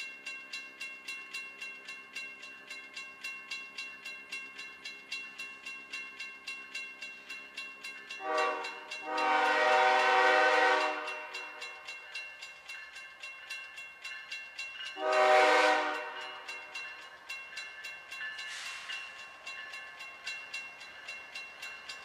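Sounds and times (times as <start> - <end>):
crossing bell ringing: 0.0 - 22.0
locomotive air horn blasts: 8.2 - 11.3, 15.0 - 16.2.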